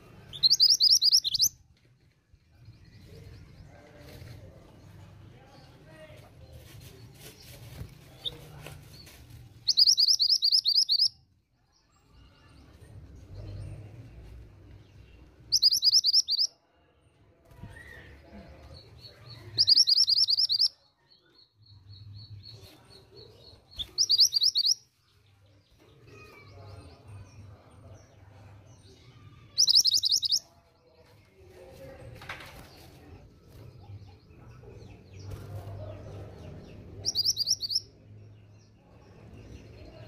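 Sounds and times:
bird trilling calls: 0:00.4 - 0:01.5, 0:09.7 - 0:11.1, 0:15.5 - 0:16.5, 0:19.6 - 0:20.7, 0:29.6 - 0:30.4.

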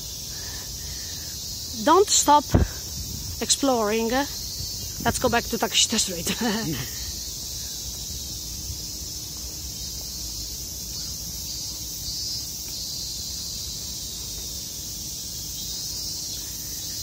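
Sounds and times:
cicadas buzzing: 0:00.0 - 0:17.0.

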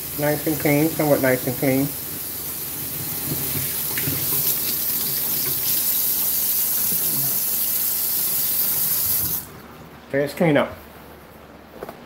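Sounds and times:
faucet running into steel sink: 0:00.0 - 0:09.5.

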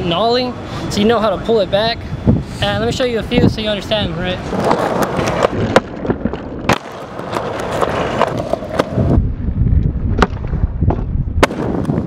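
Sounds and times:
skateboard wheels rolling on concrete: 0:00.0 - 0:12.0
skateboard clacking on concrete: 0:04.4 - 0:09.2.

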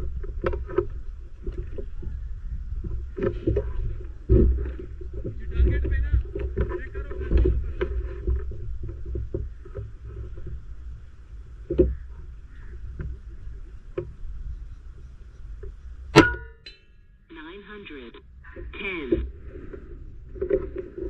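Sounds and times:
wind rumbling on microphone: 0:00.0 - 0:16.2, 0:18.2 - 0:21.0
microphone handling knocks: 0:00.4 - 0:10.6.

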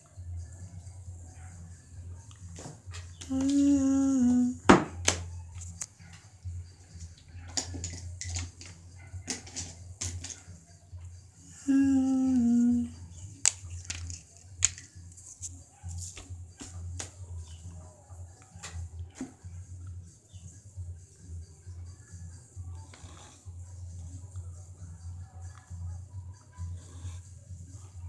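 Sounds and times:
marker clicks and taps on paper: 0:04.7 - 0:06.2, 0:13.4 - 0:17.2.

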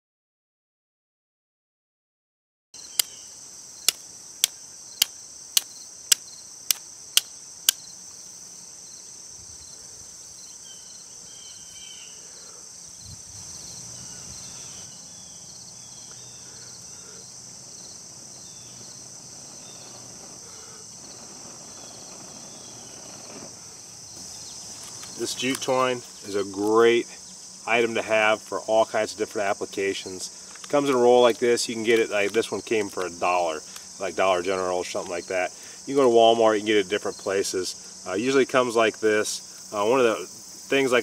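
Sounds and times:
insects chorus: 0:02.8 - 0:41.0.

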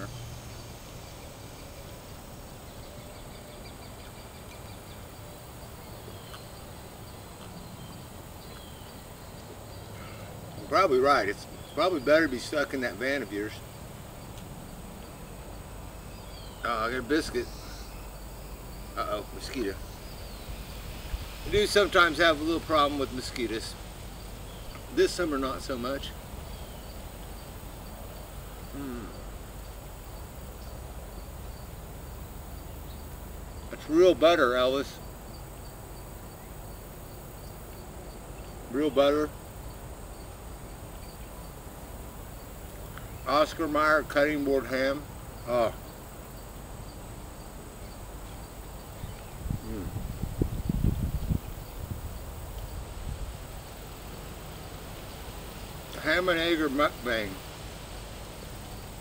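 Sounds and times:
insects chirping: 0:00.0 - 0:59.0
person humming: 0:28.7 - 0:29.3.

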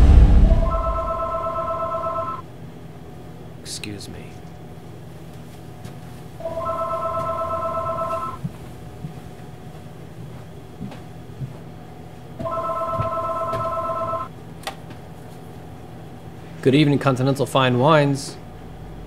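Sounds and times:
electronic telephone ringing: 0:00.5 - 0:02.4, 0:06.4 - 0:08.4, 0:12.4 - 0:14.3.

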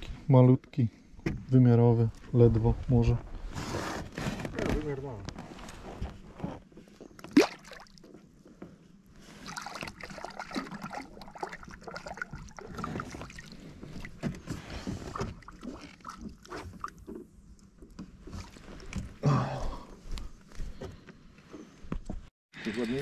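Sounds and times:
splashing in water: 0:07.2 - 0:08.1, 0:09.4 - 0:14.2.

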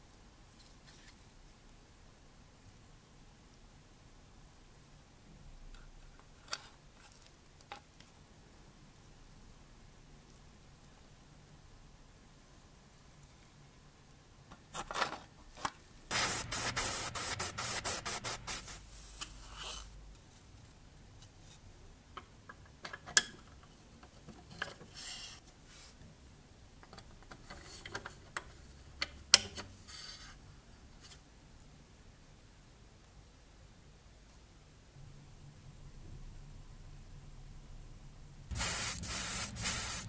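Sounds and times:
fast scraping strokes: 0:16.1 - 0:19.6.

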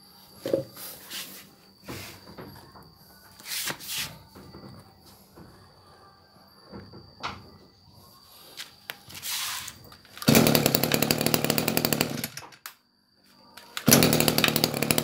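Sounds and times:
brushcutter engine running: 0:10.2 - 0:12.4, 0:13.8 - 0:15.0
starter cord rasp: 0:10.2 - 0:12.4, 0:13.8 - 0:15.0.

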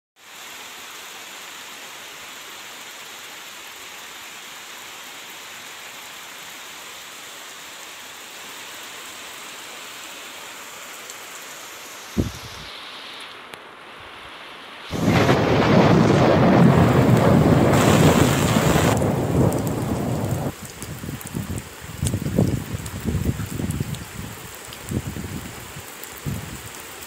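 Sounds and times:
steady rain falling: 0:00.2 - 0:27.0
thunderclap: 0:14.9 - 0:20.6.

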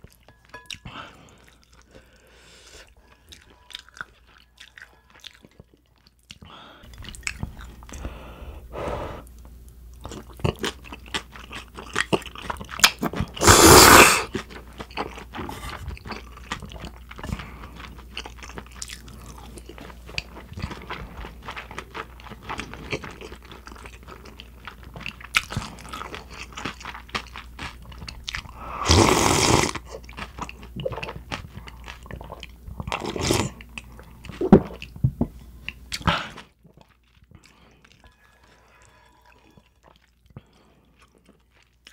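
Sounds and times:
noodle slurping: 0:13.4 - 0:14.3, 0:28.8 - 0:29.8.

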